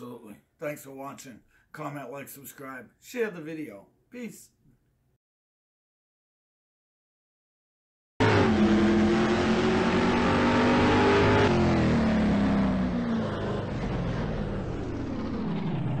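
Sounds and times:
car engine winding down: 8.2 - 16.0.

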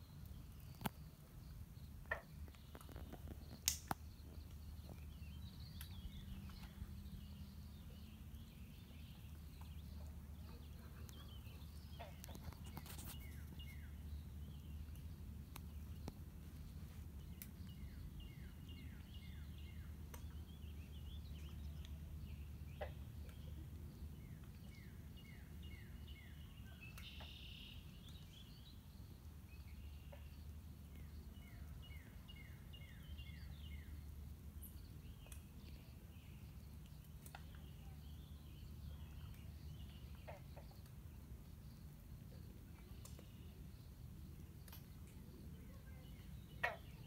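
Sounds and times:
songbird singing: 0.0 - 47.0.

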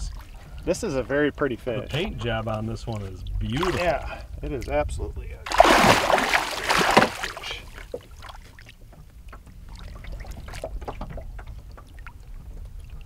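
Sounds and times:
water splashing and dripping: 5.4 - 13.0.

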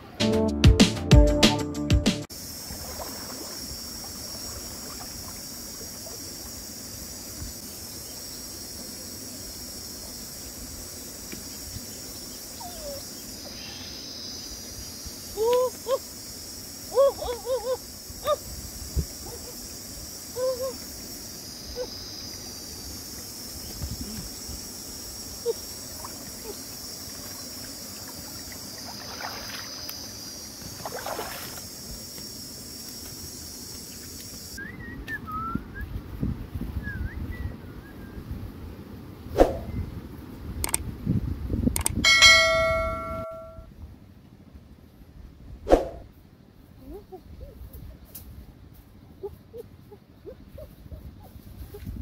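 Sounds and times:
insects buzzing: 2.2 - 43.7.

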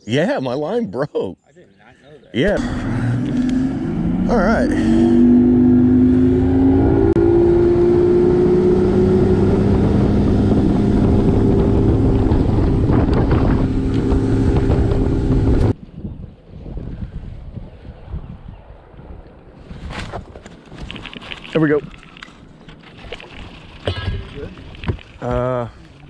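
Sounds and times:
wind: 0.0 - 26.0
outboard motor running: 2.6 - 15.7.

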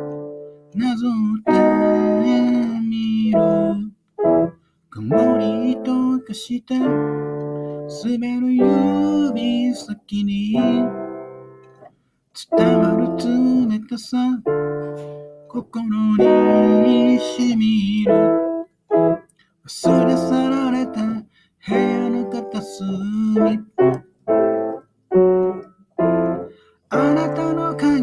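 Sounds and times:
piano chords and melody: 0.0 - 0.8, 1.4 - 11.9, 12.5 - 13.8, 14.4 - 28.0.

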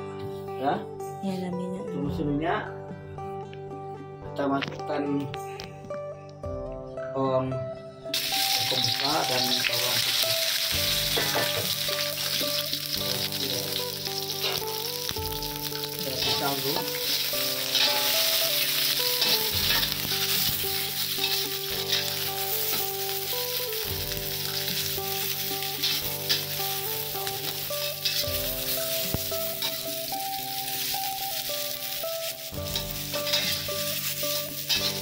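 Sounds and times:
onion sizzling in hot oil: 8.1 - 35.0
spatula scraping against pan: 32.7 - 35.0.

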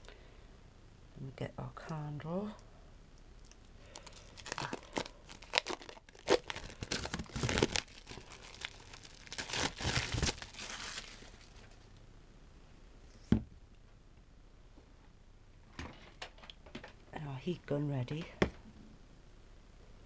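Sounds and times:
plastic wrapping crinkling and tearing: 3.9 - 11.8.

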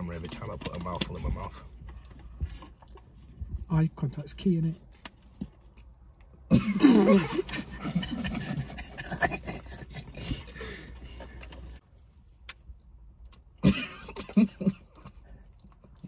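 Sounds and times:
men laughing: 6.8 - 10.9.

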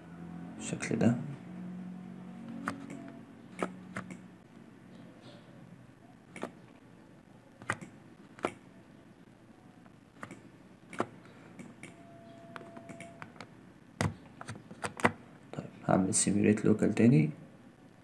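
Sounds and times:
faint low room hum: 0.0 - 18.0
mouse and keyboard clicks: 2.5 - 4.2, 6.3 - 6.8, 7.6 - 8.6, 10.2 - 15.2.

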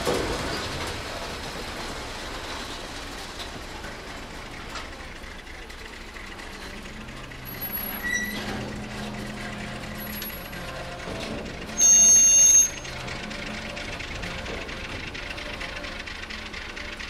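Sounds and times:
diesel locomotive engine running: 0.0 - 17.0
brief high squeals: 7.6 - 8.6, 11.7 - 13.0
locomotive horn blast: 7.6 - 17.0.

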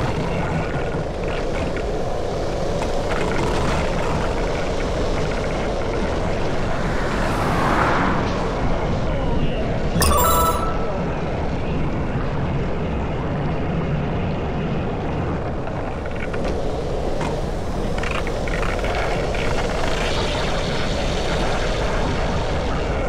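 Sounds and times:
roar of wind: 0.0 - 9.2
short electronic chime: 10.0 - 11.2.

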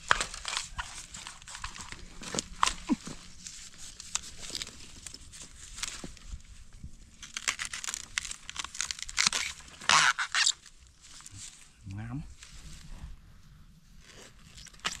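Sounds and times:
dry stalks snapping: 0.0 - 6.4, 7.1 - 11.3, 14.4 - 15.0.

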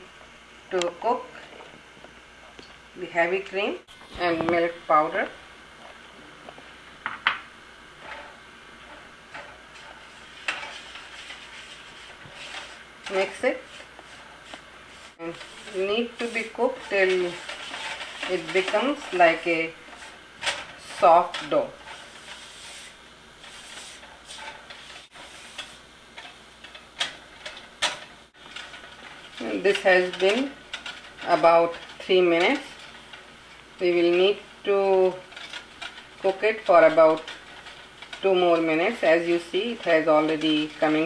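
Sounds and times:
cooking hiss: 3.8 - 41.0
spatula scraping wok: 7.8 - 41.0.

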